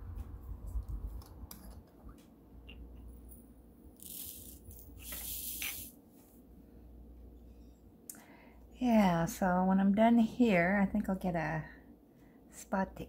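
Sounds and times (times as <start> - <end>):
plastic beads rattling in tray: 4.0 - 5.9.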